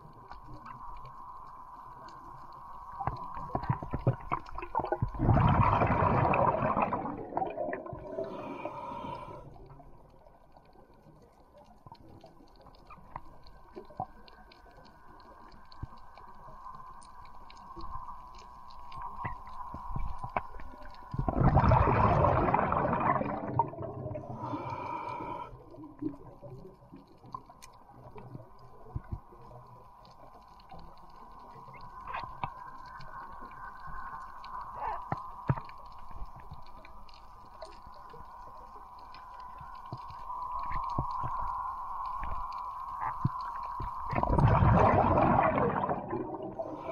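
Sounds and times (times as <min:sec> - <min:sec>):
steady high underwater hum: 0:00.0 - 0:46.9
whooshing water rush: 0:03.6 - 0:09.4, 0:21.1 - 0:25.4, 0:39.2 - 0:46.9.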